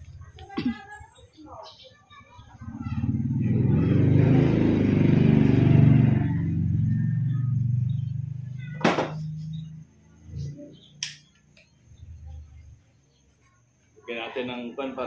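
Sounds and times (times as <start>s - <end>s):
vehicle engine passing by: 2.7s - 11.0s.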